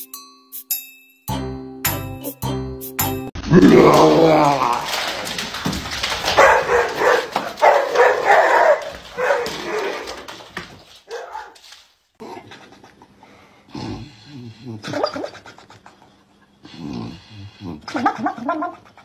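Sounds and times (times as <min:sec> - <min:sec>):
dog barking: 0:06.4 - 0:10.1, 0:11.1 - 0:11.6.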